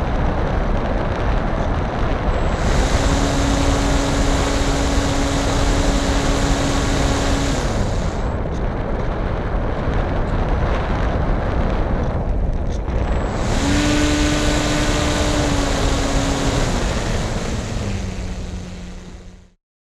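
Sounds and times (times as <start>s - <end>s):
wind rush on microphone: 0.0s - 19.4s
model plane motor humming: 2.4s - 8.4s, 13.0s - 19.6s.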